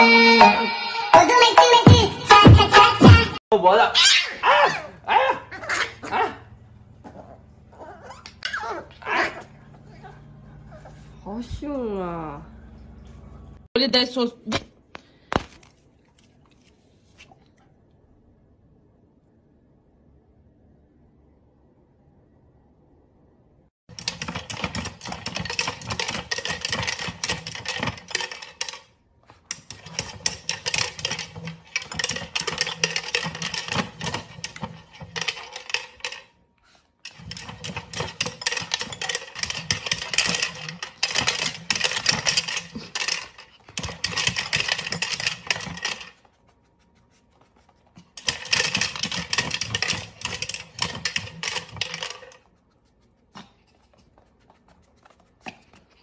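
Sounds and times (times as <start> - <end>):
plastic wheel toy clattering: 23.9 - 28.9, 29.5 - 36.3, 37.0 - 46.2, 48.2 - 52.4.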